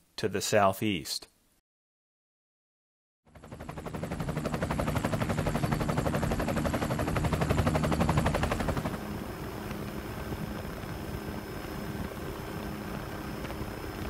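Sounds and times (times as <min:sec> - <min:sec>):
helicopter engine hum: 0:03.3 - 0:14.0
helicopter rotor chopping: 0:03.3 - 0:14.0.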